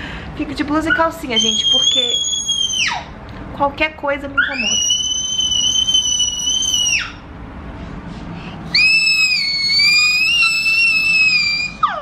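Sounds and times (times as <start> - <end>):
toddler squealing: 1.4 - 3.1, 4.4 - 7.2, 8.8 - 12.0.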